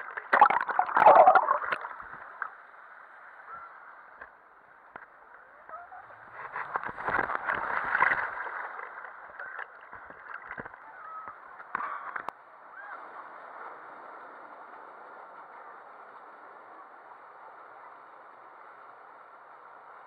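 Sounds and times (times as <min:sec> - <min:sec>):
splash into pool: 0:00.0 - 0:02.1
water rushing down a slide: 0:00.0 - 0:02.4
muffled underwater churning: 0:00.0 - 0:02.5.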